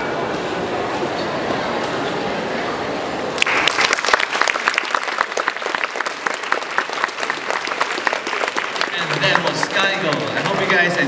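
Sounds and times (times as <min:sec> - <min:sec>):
audience applauding: 0:03.4 - 0:11.0.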